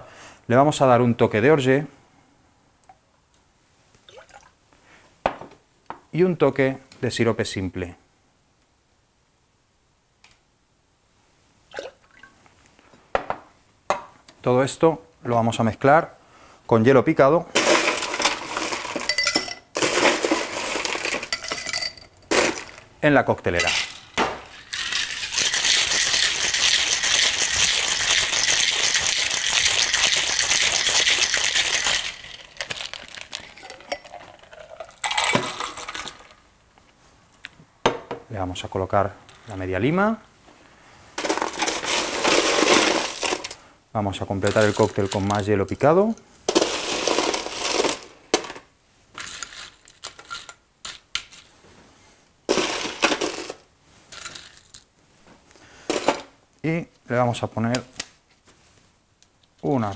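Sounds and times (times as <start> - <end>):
ice rattling in cocktail shaker: 17.5 - 22.9, 23.5 - 36.4, 41.2 - 43.6, 44.4 - 45.8, 46.5 - 48.1, 49.2 - 51.4, 52.5 - 54.8
drink pouring into glass: 23.9 - 36.3
light ice clinks: 31.4 - 36.2.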